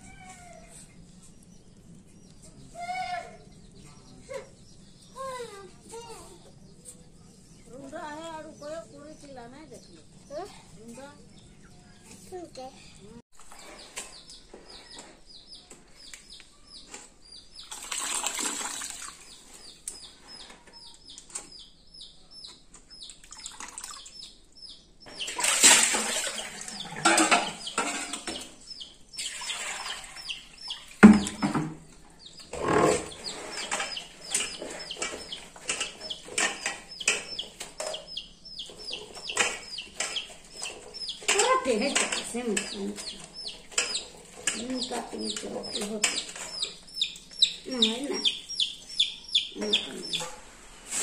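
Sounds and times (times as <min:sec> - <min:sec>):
birds chirping: 0:00.0 - 0:50.7
mushroom pieces rustling in pots: 0:38.7 - 0:46.8.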